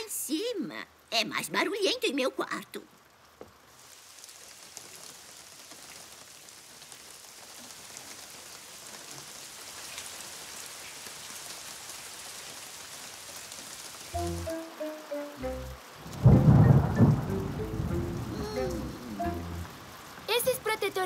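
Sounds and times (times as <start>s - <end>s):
heavy rain on a roof: 0.0s - 21.0s
short descending notes: 14.2s - 19.8s.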